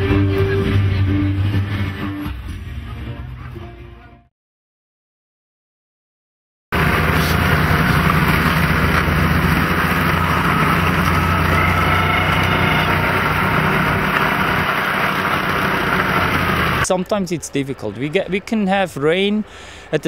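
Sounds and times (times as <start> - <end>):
vehicle engine running: 6.8 - 16.9.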